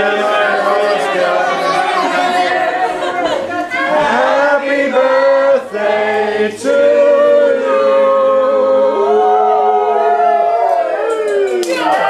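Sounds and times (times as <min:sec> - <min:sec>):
group singing in unison: 0:00.0 - 0:09.6.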